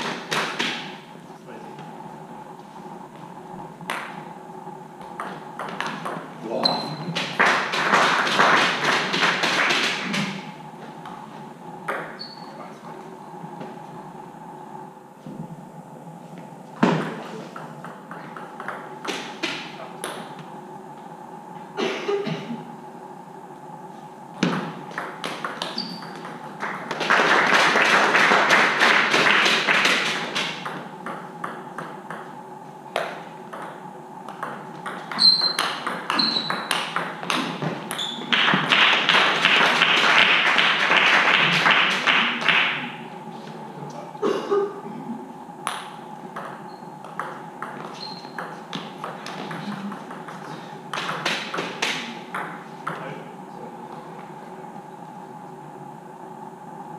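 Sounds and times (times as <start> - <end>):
people clapping: 0.0 - 0.9, 7.1 - 10.5, 25.2 - 30.6, 38.3 - 43.0, 49.1 - 52.2
faint steady hum: 0.0 - 56.9.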